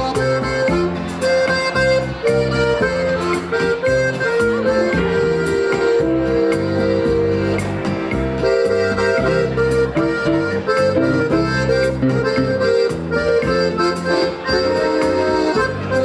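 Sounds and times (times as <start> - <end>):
accordion melody: 0.0 - 16.0
bass line: 0.0 - 16.0
keyboard backing: 0.0 - 16.0
steady beat: 0.0 - 16.0.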